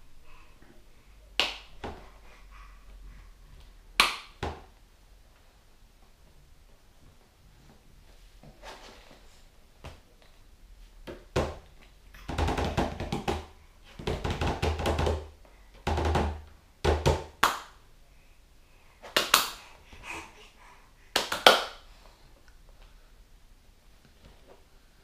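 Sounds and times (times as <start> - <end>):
hands slapping plastic tray: 19.0 - 19.6, 21.2 - 21.8.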